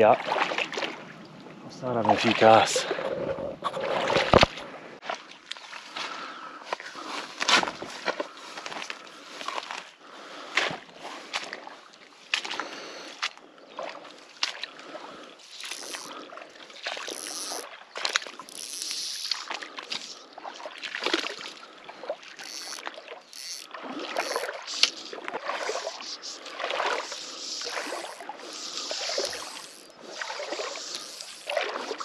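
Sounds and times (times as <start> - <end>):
water sloshing around legs: 0.0 - 1.2, 1.9 - 32.0.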